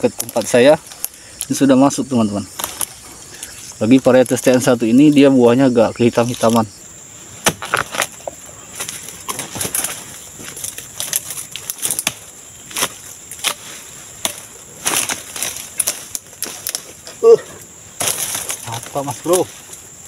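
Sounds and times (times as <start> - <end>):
blade chopping into palm stalk: 7.4 - 8.2, 11.0 - 16.8.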